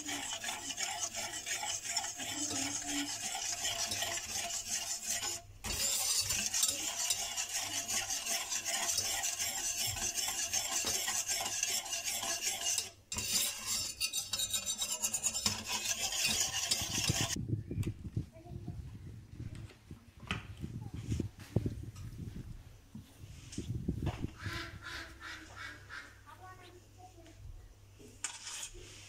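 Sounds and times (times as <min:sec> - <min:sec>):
wire whisk beating batter in bowl: 0:00.0 - 0:17.4.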